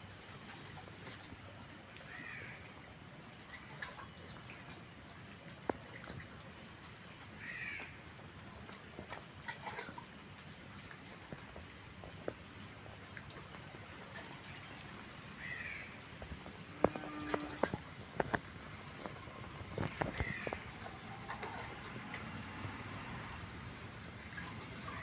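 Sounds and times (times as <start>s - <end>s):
crows cawing: 7.4s - 7.9s, 15.4s - 15.9s.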